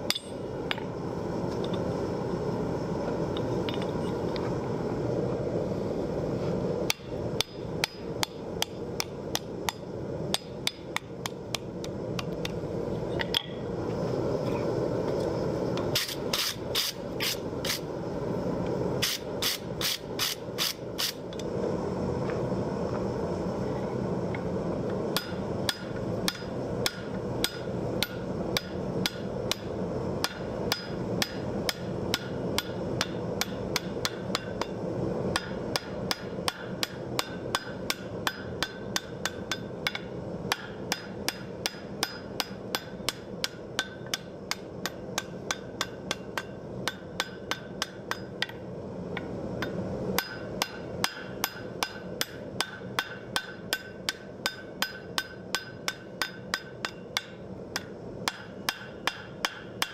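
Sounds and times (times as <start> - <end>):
low background hum: 0.0 - 59.9
hammer ringing on anvil: 0.1 - 0.4, 35.4 - 48.3, 49.6 - 59.9.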